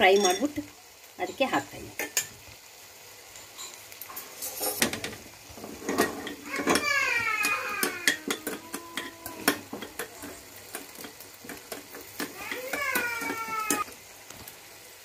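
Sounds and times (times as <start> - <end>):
metal spoon scraping frying pan: 3.4 - 13.9.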